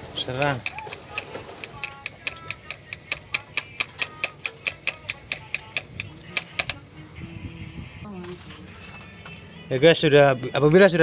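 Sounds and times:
hand priming pump clicking: 0.0 - 6.8.

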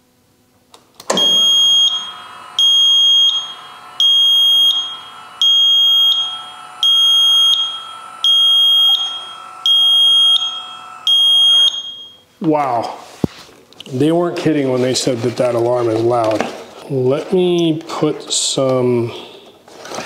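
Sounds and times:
steady actuator whine: 1.0 - 12.2
high piercing warning beeps: 1.2 - 12.2.

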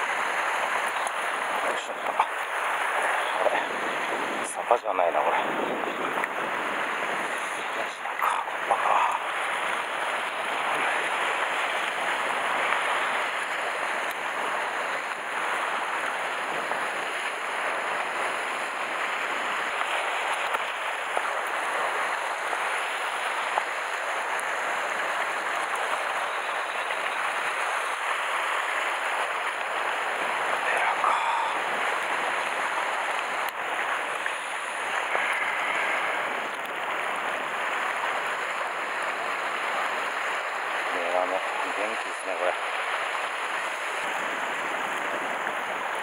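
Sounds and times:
waves washing over rocks: 0.0 - 46.0.

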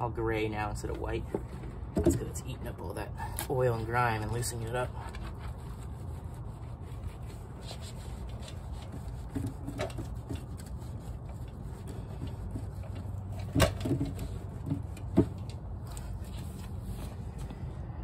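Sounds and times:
wet rag rubbing on metal: 2.3 - 13.5.

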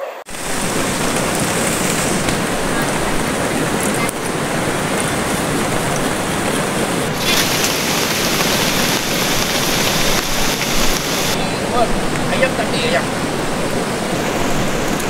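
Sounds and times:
hot oil sizzling: 0.3 - 2.6, 7.1 - 11.4
hissy sizzle of frying strips: 7.1 - 11.4.

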